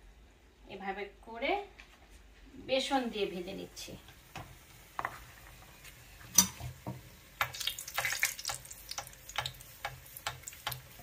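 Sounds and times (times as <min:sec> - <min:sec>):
food sizzling in hot oil: 0:04.1 - 0:11.0
metal spoon in pan: 0:06.2 - 0:11.0
oil popping and crackling: 0:06.3 - 0:11.0.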